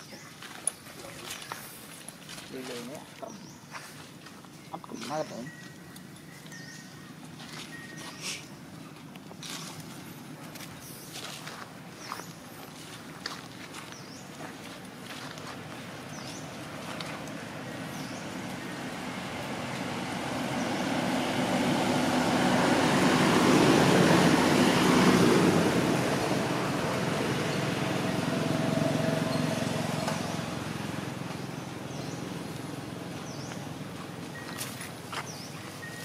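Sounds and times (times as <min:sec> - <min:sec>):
vehicle passing by: 0:14.0 - 0:36.0.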